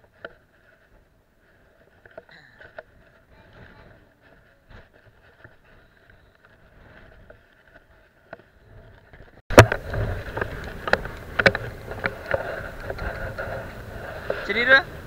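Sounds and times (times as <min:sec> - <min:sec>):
steady rush of noise: 0:06.7 - 0:15.0.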